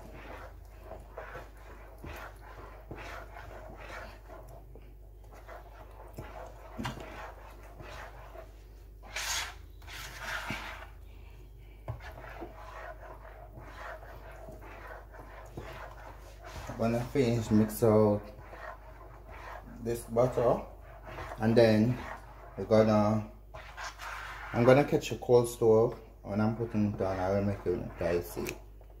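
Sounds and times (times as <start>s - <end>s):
metal spoon scraping plastic bowl: 5.3s - 11.0s, 11.9s - 28.6s.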